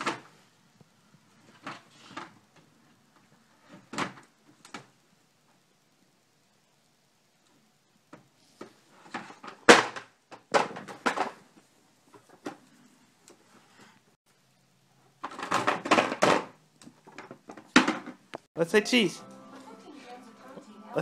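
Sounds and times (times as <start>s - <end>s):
plastic toy hoop knocking and clattering: 9.2s - 11.4s, 15.2s - 16.5s.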